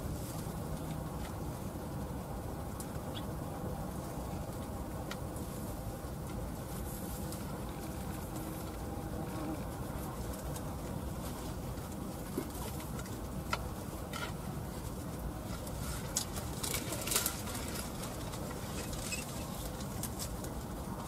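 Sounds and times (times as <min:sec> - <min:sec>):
dry grass rustling and crackling: 0:00.0 - 0:21.0
low background noise: 0:00.0 - 0:21.0.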